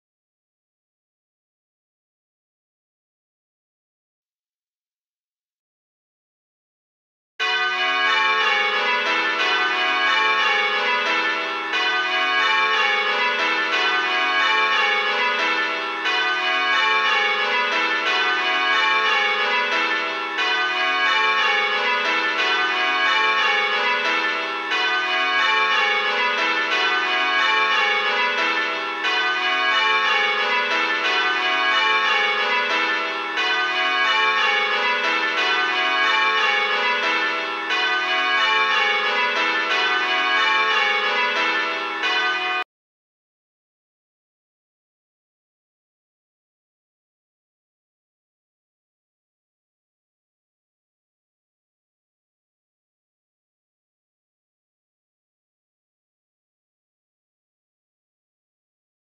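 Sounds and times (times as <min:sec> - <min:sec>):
church bells change ringing: 0:07.4 - 0:42.7.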